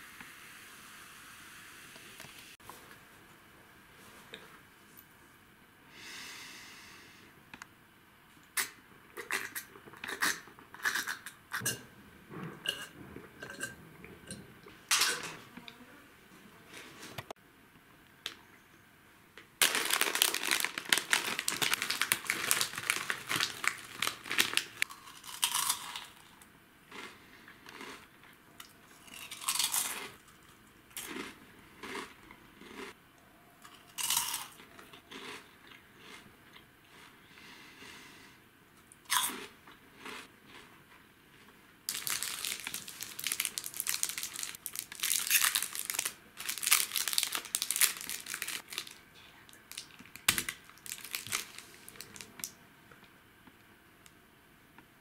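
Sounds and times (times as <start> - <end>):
packaging being torn open: 19.6 - 24.8, 41.9 - 49.0, 49.7 - 52.5
plastic packaging crinkling: 19.6 - 26.1, 41.9 - 52.5.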